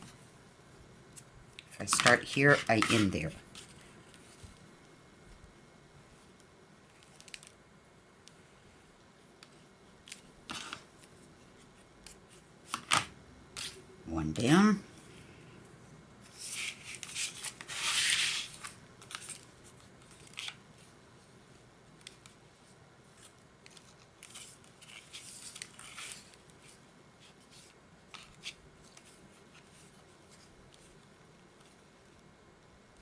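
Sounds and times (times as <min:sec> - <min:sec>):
cardstock rustling and rubbing: 0:01.8 - 0:04.6, 0:16.2 - 0:21.0, 0:22.2 - 0:32.2
twine scraping across paper: 0:13.6 - 0:13.8, 0:16.2 - 0:20.9, 0:22.5 - 0:31.0.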